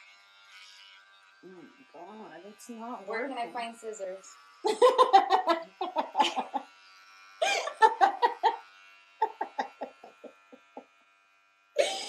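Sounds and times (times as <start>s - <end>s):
electric hair clippers humming: 0.0s - 12.0s
woman laughing: 4.7s - 6.7s, 7.4s - 8.6s, 9.2s - 10.8s, 11.8s - 12.0s.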